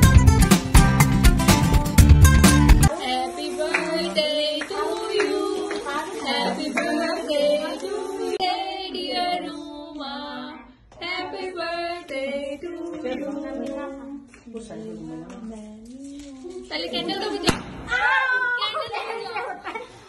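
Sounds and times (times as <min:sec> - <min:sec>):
group of voices singing a celebration song: 0:02.8 - 0:15.8.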